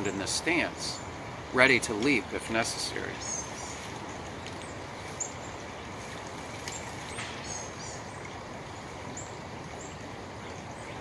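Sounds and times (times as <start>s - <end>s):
stream rushing: 0.0s - 11.0s
bird chirps: 3.2s - 5.6s, 6.7s - 8.2s.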